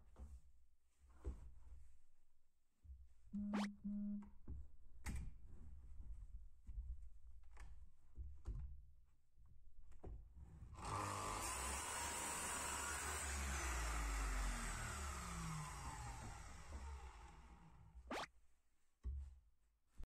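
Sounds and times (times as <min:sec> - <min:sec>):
miter saw cutting wood: 0:10.8 - 0:17.6.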